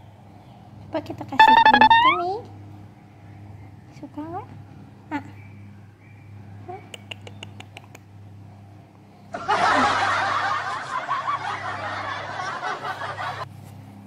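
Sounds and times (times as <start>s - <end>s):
snickering laughter: 9.4s - 13.4s.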